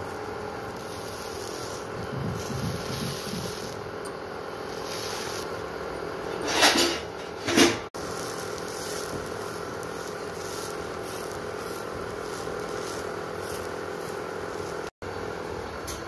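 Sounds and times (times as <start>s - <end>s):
induction cooktop electric hum: 0.0s - 16.0s
utensil scraping pan: 6.3s - 14.9s.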